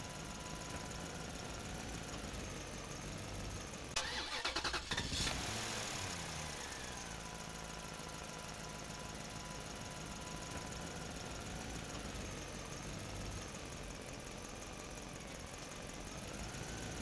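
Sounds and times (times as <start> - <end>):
tractor engine idling: 0.0 - 5.0
rapid engine rattling: 0.0 - 6.5.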